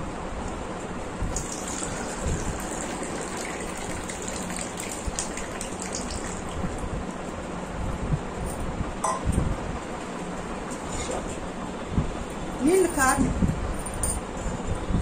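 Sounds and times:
water pouring into steel tumbler: 0:01.3 - 0:06.7.

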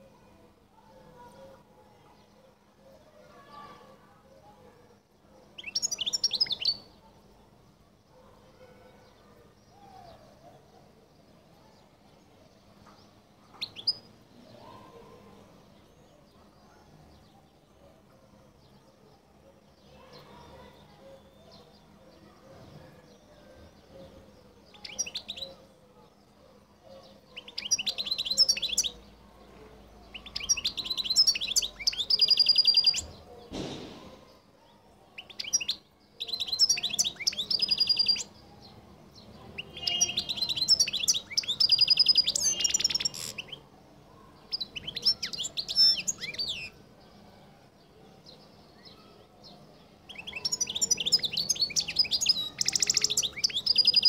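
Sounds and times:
finch twittering and trilling: 0:27.4 - 0:29.0, 0:30.1 - 0:33.2, 0:35.2 - 0:38.3, 0:39.6 - 0:43.6, 0:50.1 - 0:54.0
knock-like noise: 0:33.5 - 0:34.3.

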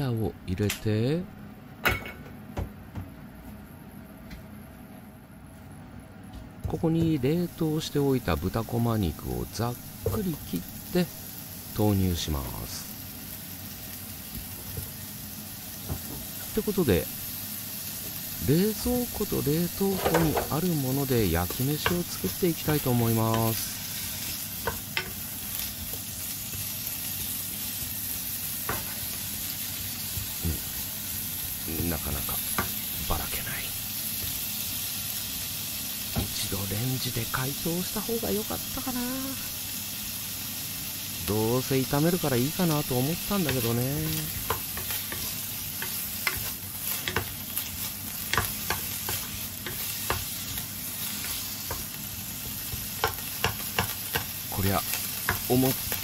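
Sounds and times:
pork sizzling in a frying pan: 0:06.8 - 0:56.0
spatula knocking against pan: 0:52.7 - 0:54.4.

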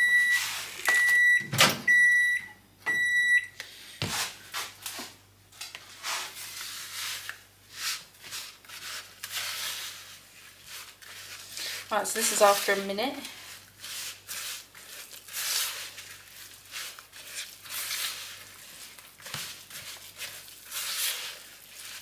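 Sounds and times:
microwave oven beeping: 0:00.0 - 0:03.6
spatula scraping plastic bowl: 0:05.8 - 0:22.0.

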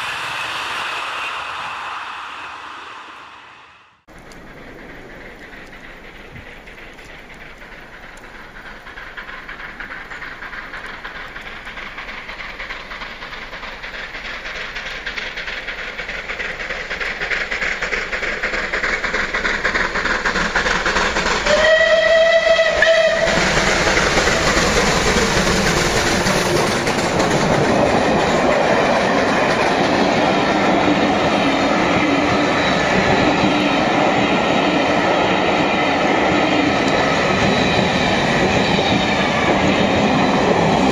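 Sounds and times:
steam locomotive passing: 0:00.0 - 0:40.9
steam whistle: 0:21.4 - 0:23.6.

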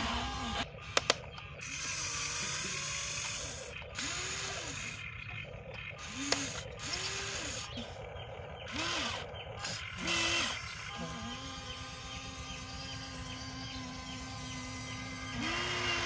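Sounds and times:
toy excavator motors whirring: 0:00.0 - 0:16.0
sharp click: 0:00.9 - 0:01.5.

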